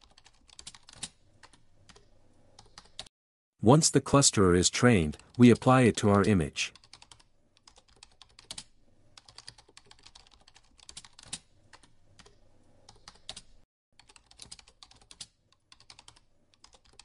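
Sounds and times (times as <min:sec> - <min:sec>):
typing on computer keyboard: 0:00.0 - 0:03.1, 0:06.8 - 0:17.0.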